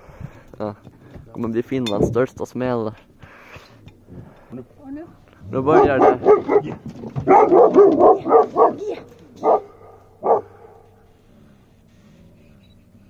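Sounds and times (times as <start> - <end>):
dog barking: 5.6 - 10.9.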